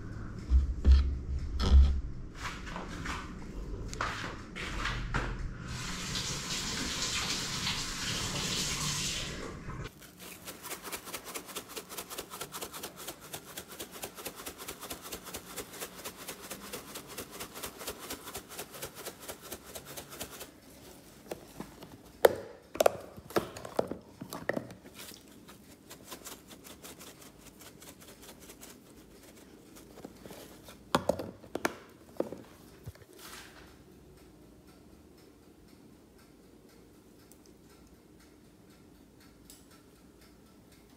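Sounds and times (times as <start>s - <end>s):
spice shaker shaking: 9.9s - 20.6s, 24.9s - 30.9s.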